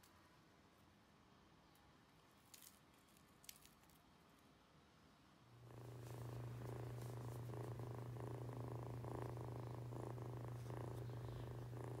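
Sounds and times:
kitten purring: 0:05.6 - 0:12.0.

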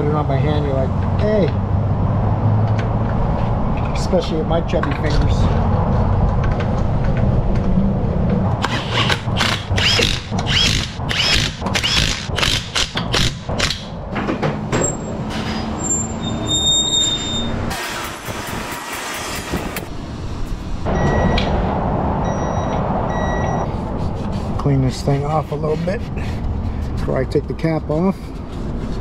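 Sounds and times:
impact wrench bursts: 0:08.6 - 0:13.9.

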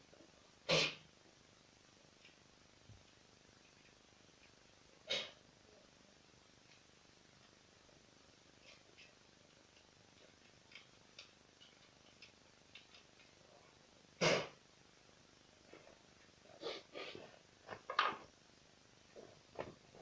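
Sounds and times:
rustling: 0:19.1 - 0:20.0.

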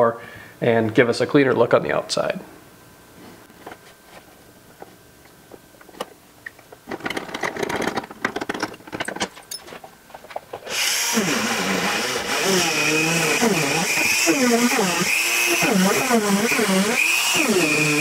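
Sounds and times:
tools clattering in plastic bin: 0:06.9 - 0:10.4
rotary grinder whining: 0:10.6 - 0:18.0.

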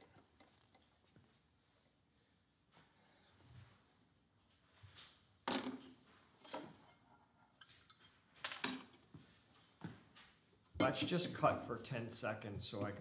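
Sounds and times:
metal tools clinking on workbench: 0:07.8 - 0:09.1.

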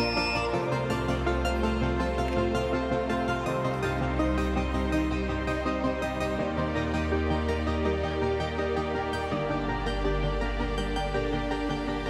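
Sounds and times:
background music with held notes: 0:00.0 - 0:12.0.

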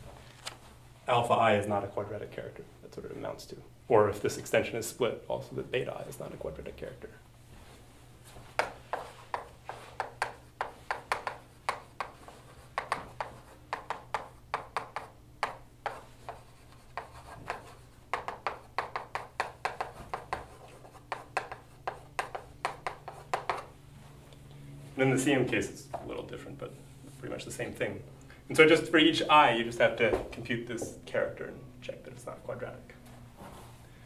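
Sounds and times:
steady low hum: 0:00.0 - 0:34.0
chalk tapping and scratching: 0:08.3 - 0:23.8.

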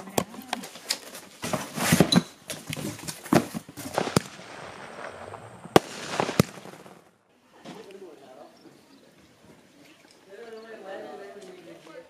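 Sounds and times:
fireworks bangs and cracks: 0:03.7 - 0:07.2
fireworks hissing: 0:03.8 - 0:07.2.

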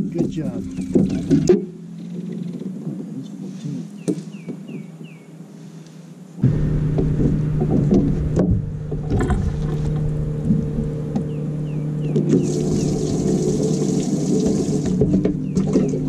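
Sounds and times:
electric motor hum: 0:06.4 - 0:16.0
low rumble: 0:06.4 - 0:16.0.

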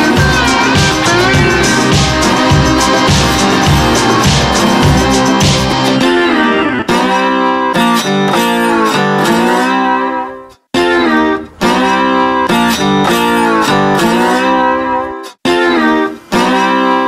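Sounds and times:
guitar background music: 0:00.0 - 0:17.0.

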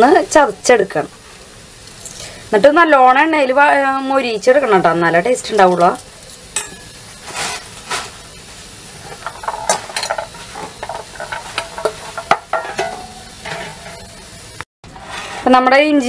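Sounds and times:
faint steady hiss: 0:00.0 - 0:14.7.

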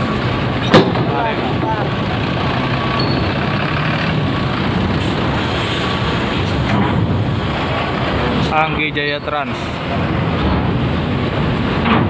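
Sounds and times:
bus diesel engines running: 0:00.0 - 0:12.0
air brake hiss: 0:05.0 - 0:06.3.

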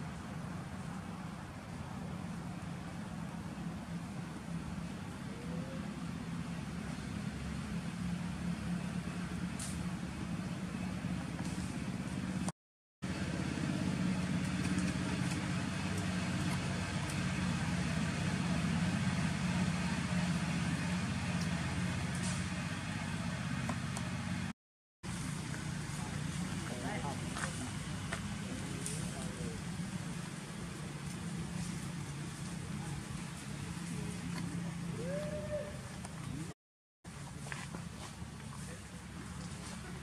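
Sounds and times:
engine humming: 0:00.0 - 0:40.0.

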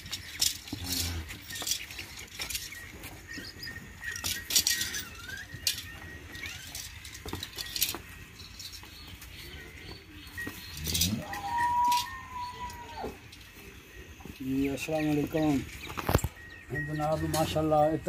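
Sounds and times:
knocks shuffles and rustles: 0:00.0 - 0:18.0
long cow call: 0:11.0 - 0:13.2.

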